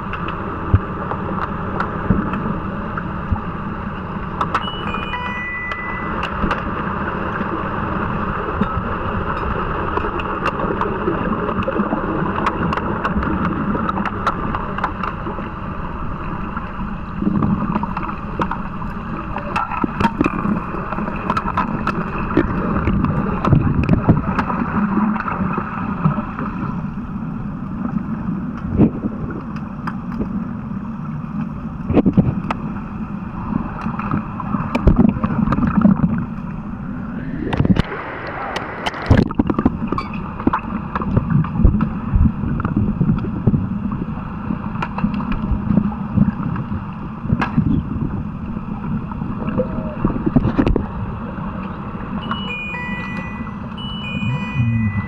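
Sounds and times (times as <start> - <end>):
water rushing: 0.0 - 28.4, 33.3 - 41.6, 48.5 - 55.0
muffled underwater noise: 0.0 - 55.0.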